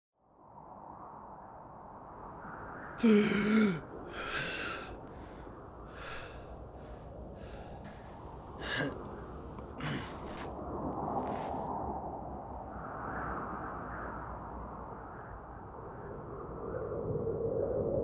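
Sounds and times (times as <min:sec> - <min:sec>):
man gasping and groaning: 0:03.0 - 0:08.0, 0:08.6 - 0:09.1, 0:09.7 - 0:10.5
man breathing heavily: 0:03.0 - 0:10.5.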